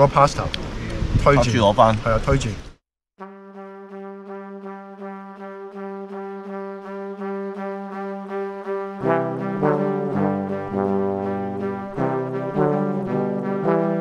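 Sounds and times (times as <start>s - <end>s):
bass line: 3.2s - 14.0s
fuller chords: 3.2s - 14.0s
pulsing held synth note: 3.2s - 14.0s.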